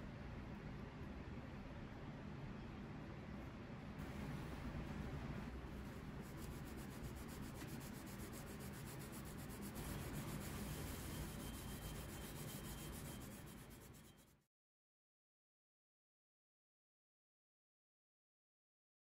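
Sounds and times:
scouring pad scrubbing metal: 0:05.8 - 0:13.9.

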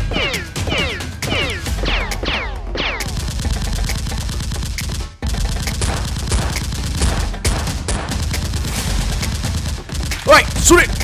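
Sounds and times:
machine-gun fire: 0:03.0 - 0:11.0.

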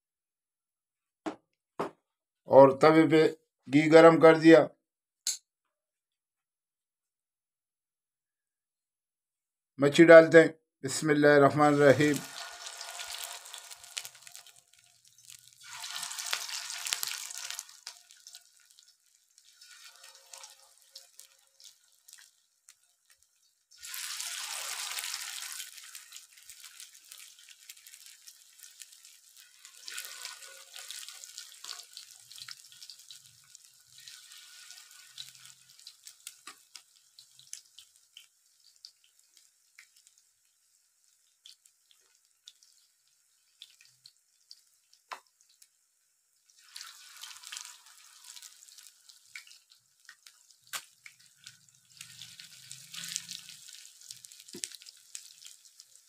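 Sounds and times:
fish sizzling in hot fat: 0:11.6 - 0:56.0.

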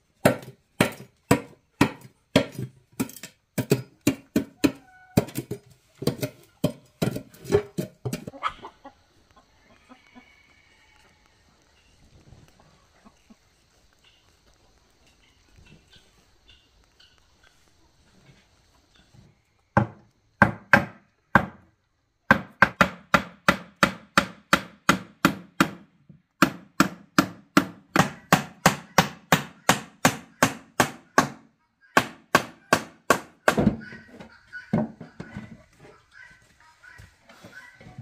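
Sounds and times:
hammer driving nails into wood: 0:22.3 - 0:25.8, 0:26.4 - 0:31.4.

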